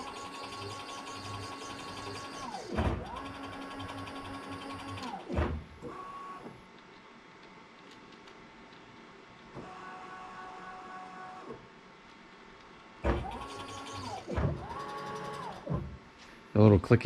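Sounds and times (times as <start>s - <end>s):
machine thump: 2.7s - 3.1s, 5.3s - 5.7s, 13.0s - 13.4s.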